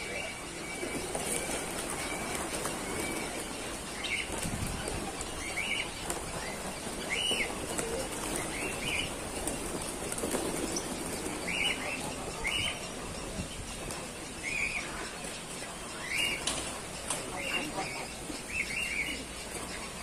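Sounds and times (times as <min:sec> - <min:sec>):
pigeons flapping wings: 0:00.4 - 0:12.9.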